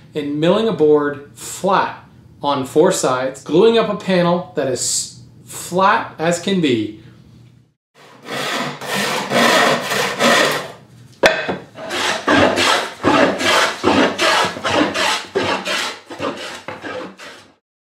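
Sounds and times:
hand saw cutting wood: 8.0s - 10.8s, 11.8s - 17.6s.

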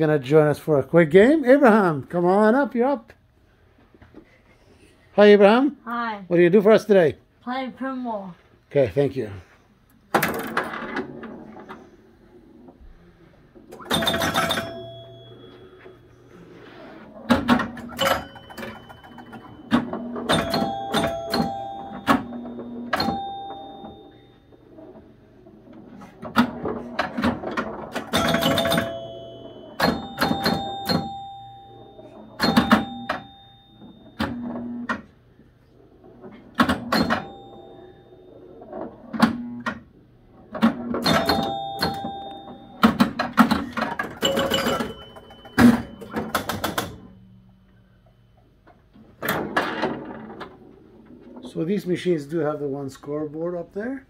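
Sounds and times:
pinball flippers and relays clacking: 13.7s - 15.8s, 17.2s - 24.2s, 25.7s - 35.1s, 36.2s - 37.6s, 40.5s - 47.2s
score reels clicking: 27.2s - 31.3s.

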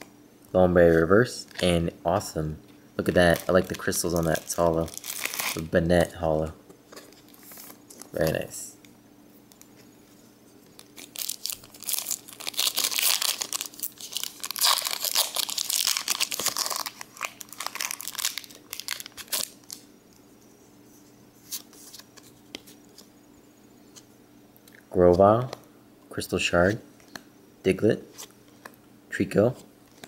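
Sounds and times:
foil wrapper crinkling and tearing: 3.1s - 5.7s, 10.8s - 19.8s
cards being handled: 10.6s - 19.8s.

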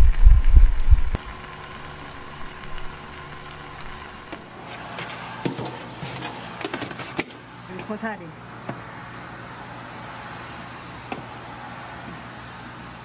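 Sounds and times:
faint steady hum: 0.0s - 4.6s
stew boiling with low bubbling: 0.0s - 5.4s.

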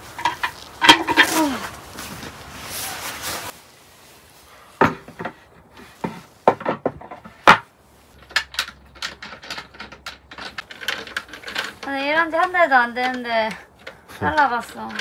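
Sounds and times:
wooden table knocks and clatter: 4.8s - 5.4s, 6.0s - 7.6s.

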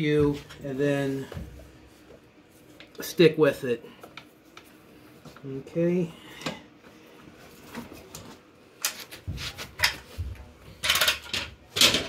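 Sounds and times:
clamps clicking and knocking: 10.8s - 12.0s.

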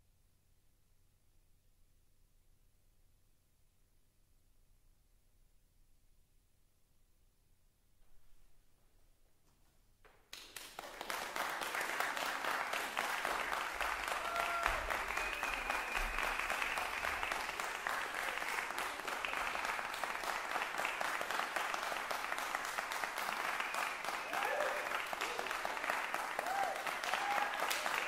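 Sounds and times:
audience applause: 10.3s - 28.0s.

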